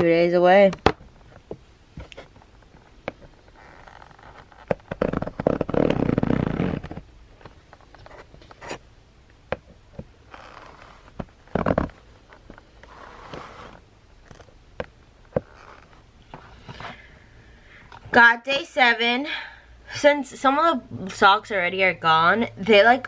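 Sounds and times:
cardboard scraping and rustling: 0:10.4 - 0:14.5.

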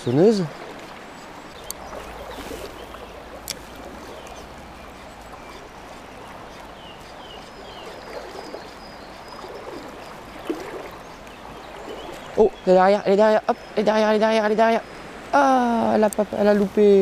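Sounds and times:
river water flowing: 0:00.0 - 0:17.0.

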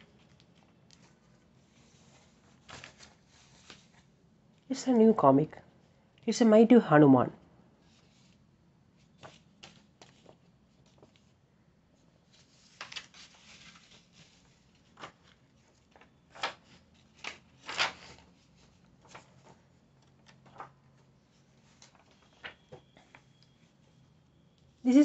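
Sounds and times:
paper pages rustling: 0:00.0 - 0:04.2, 0:07.8 - 0:11.4, 0:12.0 - 0:24.0.

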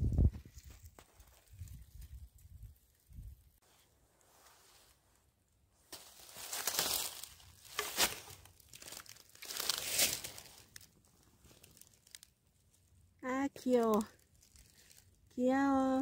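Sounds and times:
footsteps crunching leaves and snow: 0:05.9 - 0:12.3, 0:14.1 - 0:15.2.

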